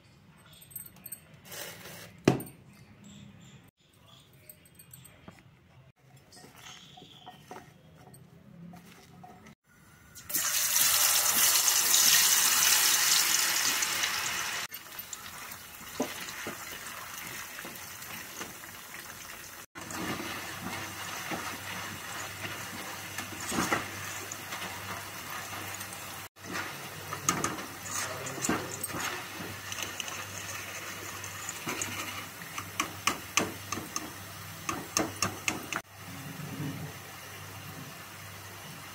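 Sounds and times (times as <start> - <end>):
food deep-frying in hot oil: 10.2 - 38.9.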